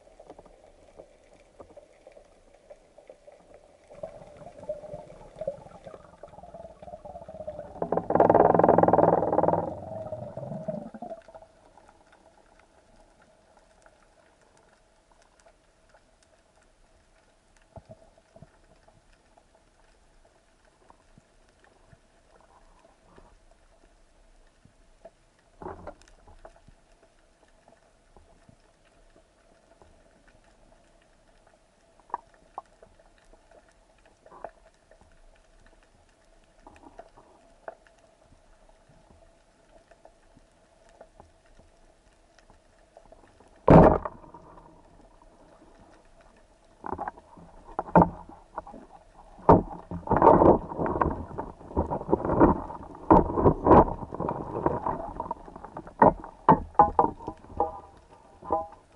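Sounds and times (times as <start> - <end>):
knocks and clatter on stony seabed: 0.0 - 16.4, 17.6 - 58.9.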